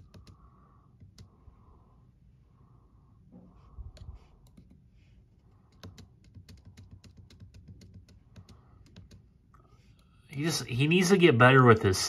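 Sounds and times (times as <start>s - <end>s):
keyboard keys clicking: 0.0s - 0.4s, 5.7s - 9.2s.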